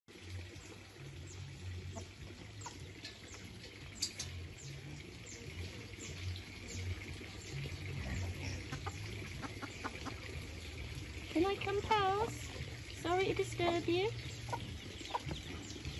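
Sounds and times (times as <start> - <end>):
chicks peeping: 13.7 - 15.9.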